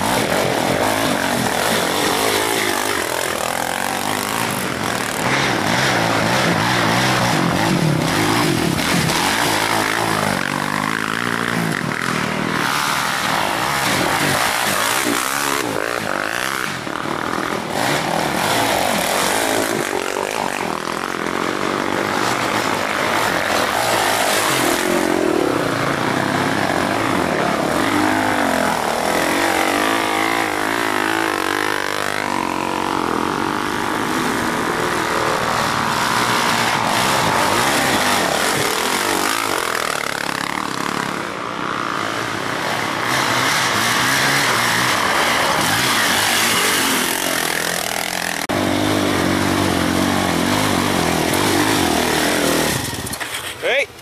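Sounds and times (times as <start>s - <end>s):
quad engines revving: 0.0s - 54.0s.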